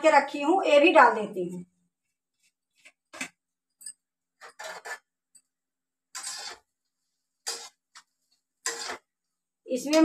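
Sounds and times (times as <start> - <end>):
metal ladle scraping steel pan: 4.4 - 5.5, 6.1 - 9.4.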